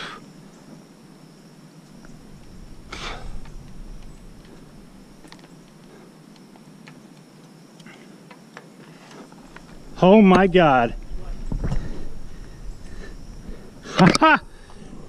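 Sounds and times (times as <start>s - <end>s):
low steady rush: 0.0s - 15.0s
light clicks of wind vane: 1.8s - 10.5s.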